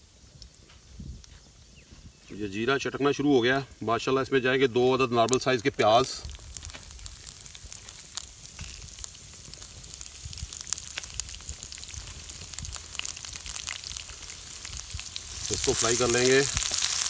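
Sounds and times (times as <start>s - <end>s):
seeds crackling: 0.0s - 17.0s
onions sizzling in hot oil: 5.2s - 17.0s.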